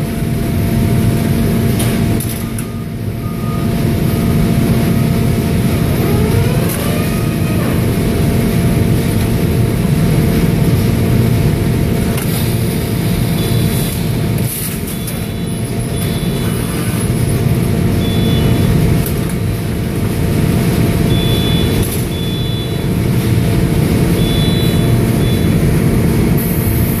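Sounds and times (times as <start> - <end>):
machine drone: 0.0 - 27.0
rising whine: 3.2 - 8.9
short high-pitched tones: 21.1 - 22.8, 24.2 - 25.6.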